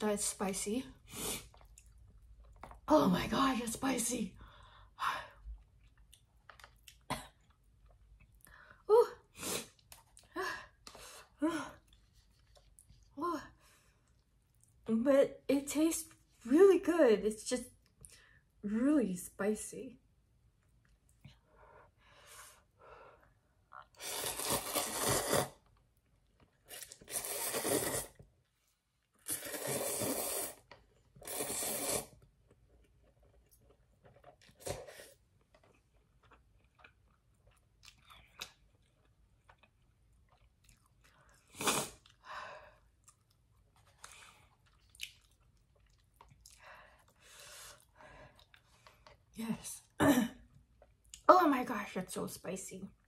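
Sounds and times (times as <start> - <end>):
person slurping noodles: 23.9 - 25.7, 26.7 - 28.2, 29.2 - 32.2, 41.3 - 42.2
woman coughing: 50.0 - 50.5.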